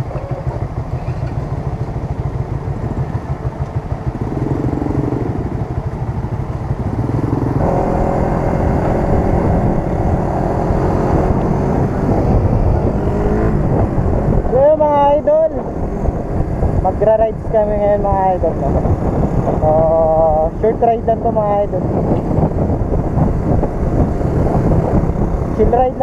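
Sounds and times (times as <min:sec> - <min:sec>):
motorcycle engine idling: 0:00.0 - 0:08.0
motorcycle riding off: 0:00.0 - 0:26.0
other motorcycle engines: 0:00.0 - 0:26.0.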